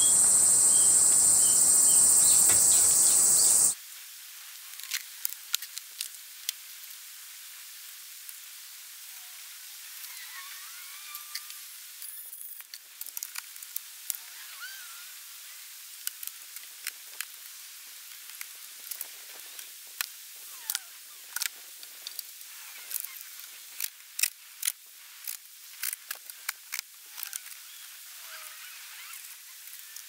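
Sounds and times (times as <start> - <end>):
steady outdoor hiss: 0.0 - 30.0
sharp clicks and crinkles: 22.9 - 27.6.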